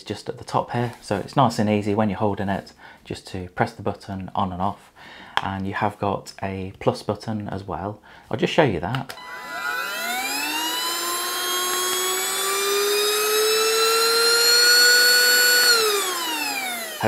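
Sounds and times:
handheld vacuum motor whining: 9.1s - 17.0s.

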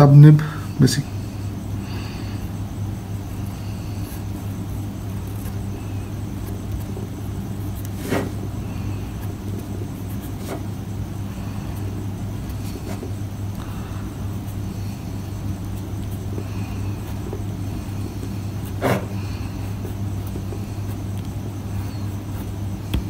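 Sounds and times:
steady low hum: 0.0s - 23.0s
pen nib scratching on paper: 3.3s - 10.8s, 11.5s - 13.7s, 14.3s - 23.0s.

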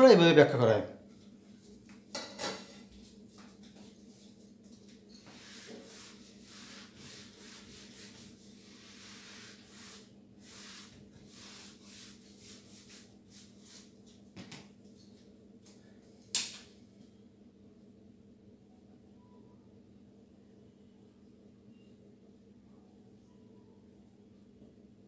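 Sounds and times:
low steady hum: 0.0s - 25.0s
eraser rubbing whiteboard: 5.2s - 14.0s.

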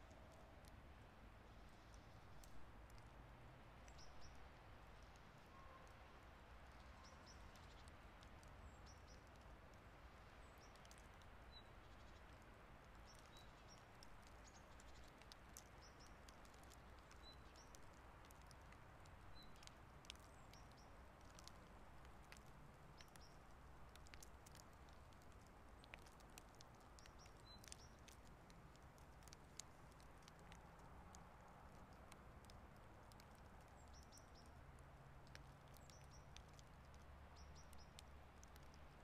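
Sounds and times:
faint steady hiss: 0.0s - 39.0s
snow ticks landing: 13.0s - 31.2s.

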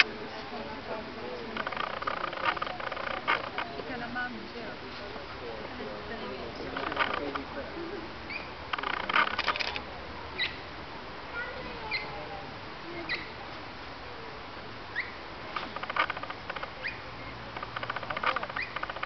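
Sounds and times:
high-pitched animal chirps: 13.1s - 13.3s, 18.4s - 18.9s
rapid clicking: 17.5s - 19.0s.

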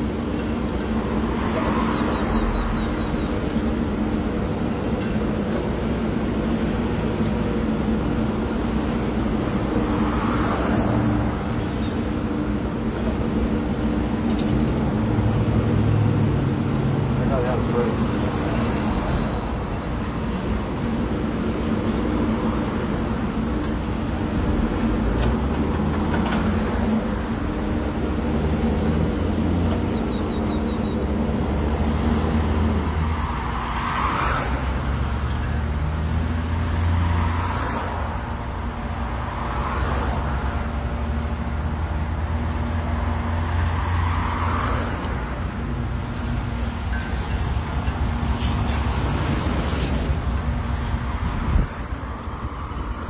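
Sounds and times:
cars passing with tyre swish: 0.0s - 53.0s.

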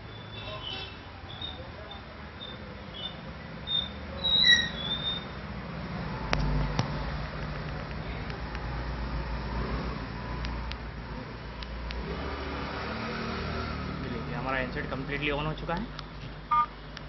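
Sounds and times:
vehicle engine rumble: 0.0s - 17.0s
sharp clicks: 11.5s - 12.0s.

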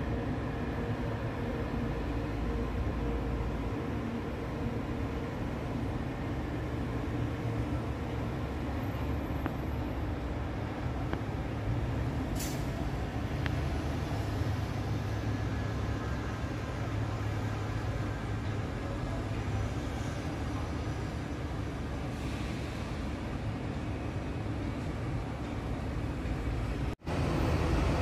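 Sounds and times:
city traffic rumble: 0.0s - 28.0s
short hiss: 12.3s - 12.8s.

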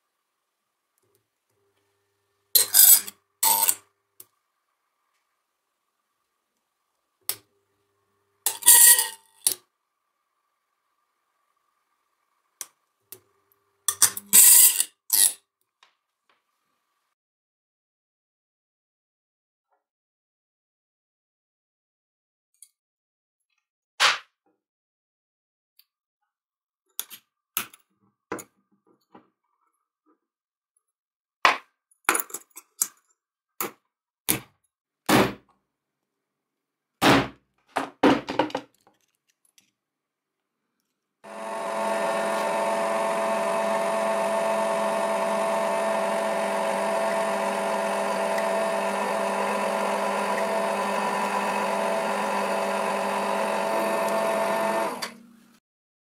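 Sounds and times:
small electric motor humming: 41.3s - 55.2s.

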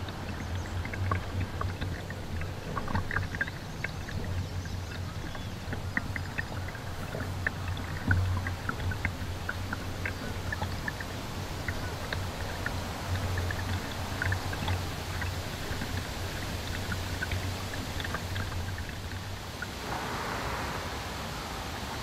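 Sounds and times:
low steady hum: 0.0s - 22.0s
river rushing over rocks: 16.3s - 22.0s.

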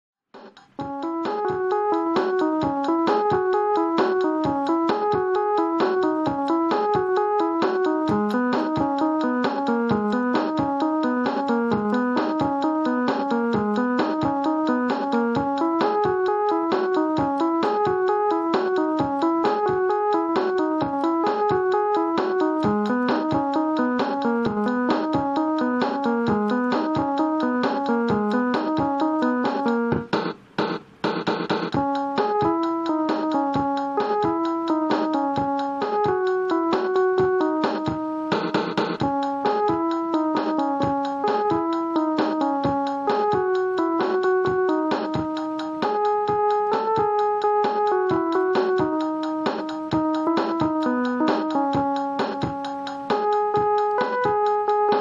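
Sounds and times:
electronic keyboard melody: 0.4s - 55.0s
noisy bursts: 29.6s - 31.9s.

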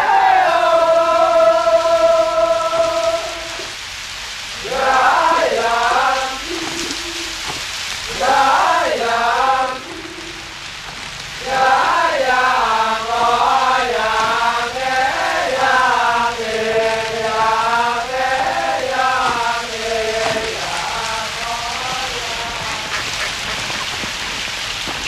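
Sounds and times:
person chanting: 0.0s - 3.8s, 4.6s - 10.7s, 11.4s - 23.5s
heavy rain hiss: 0.0s - 25.0s.

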